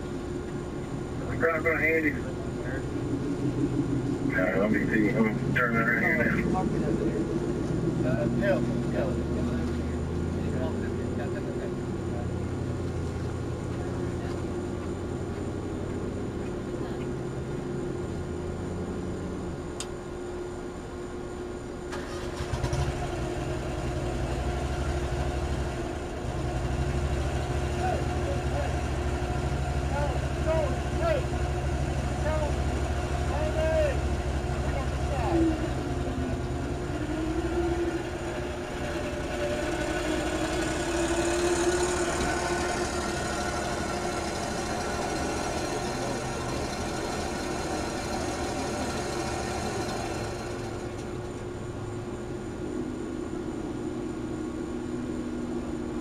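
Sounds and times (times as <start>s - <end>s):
lawn mower engine idling: 0.0s - 18.2s, 21.6s - 53.7s
engine starter clicks: 21.9s - 23.1s.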